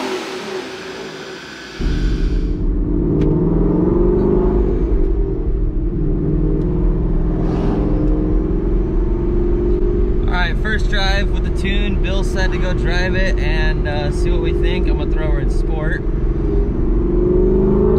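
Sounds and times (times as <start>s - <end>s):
car engine rumble from inside: 0.0s - 17.9s.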